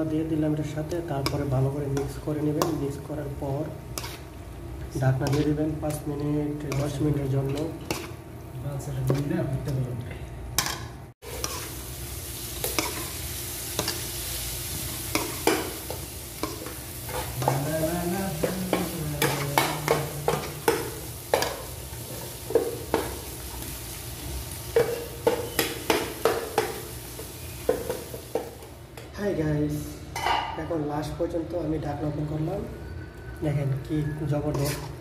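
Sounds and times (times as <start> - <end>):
frying sizzle: 0.0 - 10.0, 10.6 - 29.7
spoon stirring and scraping pot: 3.7 - 8.2, 10.6 - 11.8, 15.1 - 17.8, 34.4 - 35.0.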